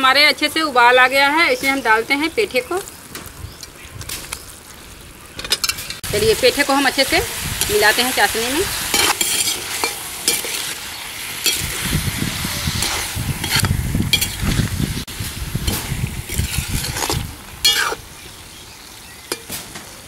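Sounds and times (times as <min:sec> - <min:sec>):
syrup bubbling and sizzling: 0:01.9 - 0:20.0
metal skimmer scraping a metal pan: 0:08.9 - 0:10.8, 0:11.4 - 0:11.9, 0:12.6 - 0:14.6, 0:15.6 - 0:18.0.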